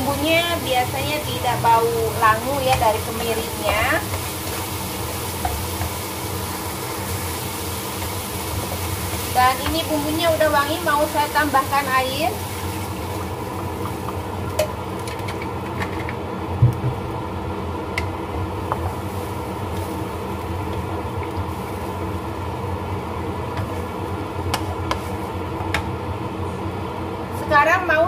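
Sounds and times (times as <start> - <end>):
steady mechanical hum: 0.0 - 28.0
spatula stirring broth in a pan: 2.6 - 10.1, 23.5 - 25.8.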